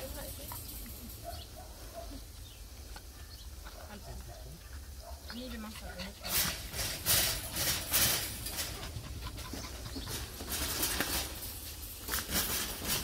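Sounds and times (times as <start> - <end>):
dog panting: 3.8 - 10.3.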